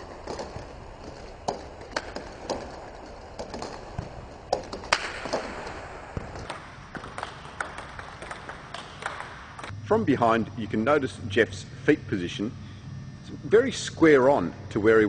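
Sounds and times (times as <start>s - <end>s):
table tennis balls clicking: 0.0s - 9.8s.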